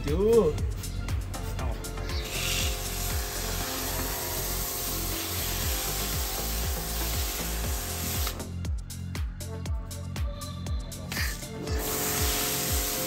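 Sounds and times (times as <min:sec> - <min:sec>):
foam cannon spraying hiss: 0:02.3 - 0:08.4, 0:11.7 - 0:13.0.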